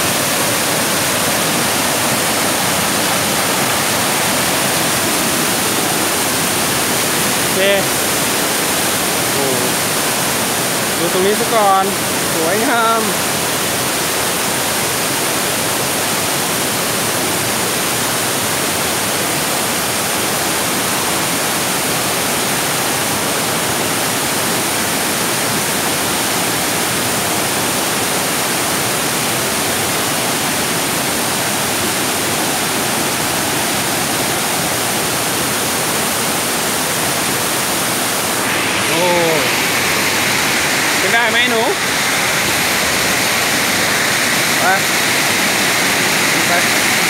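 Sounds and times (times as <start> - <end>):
waterfall rushing over rocks: 0.0 - 47.0.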